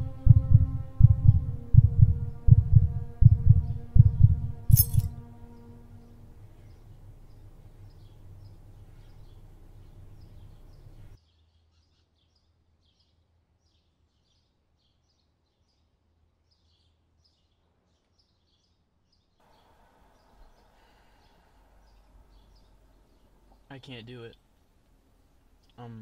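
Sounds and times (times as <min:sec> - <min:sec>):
low hum: 0:00.0 - 0:11.2
faint outdoor background noise: 0:00.0 - 0:26.0
small birds chirping: 0:06.6 - 0:24.4.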